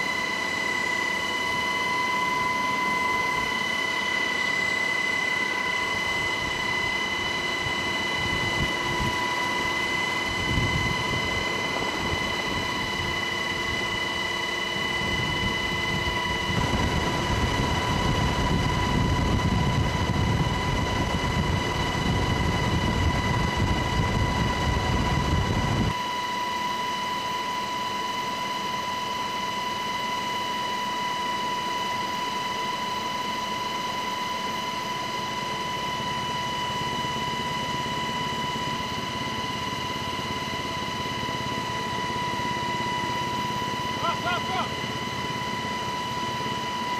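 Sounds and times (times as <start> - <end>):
helicopter high whine: 0.0 - 46.9
rotor and wind rumble: 5.9 - 14.1, 14.8 - 26.0.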